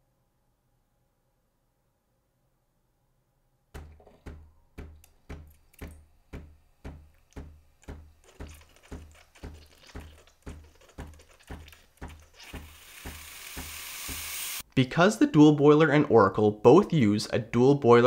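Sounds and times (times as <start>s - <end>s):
espresso machine pump pulsing: 8.3s - 14.6s
steam wand hissing: 12.4s - 14.6s.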